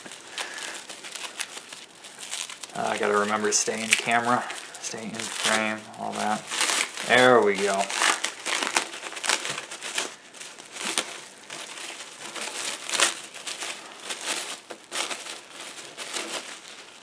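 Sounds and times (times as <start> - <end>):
trading cards rustling and clicking: 0.0 - 16.8.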